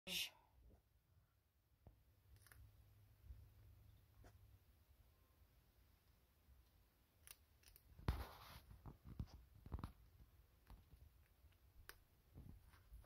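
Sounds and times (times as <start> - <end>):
chinchilla crunching treat: 2.3 - 2.7, 7.1 - 10.0.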